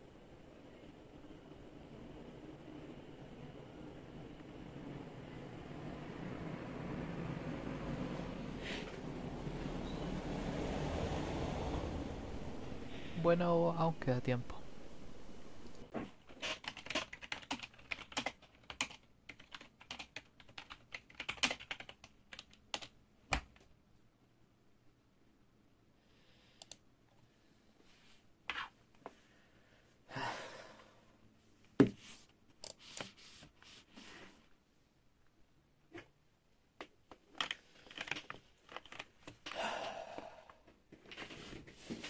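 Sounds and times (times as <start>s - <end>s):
typing on a computer keyboard: 16.4s - 23.4s, 37.4s - 39.2s.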